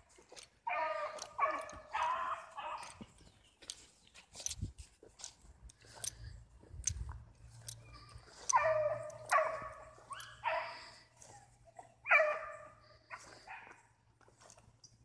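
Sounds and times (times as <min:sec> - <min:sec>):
hounds baying: 0:00.0 - 0:03.8, 0:07.5 - 0:14.6.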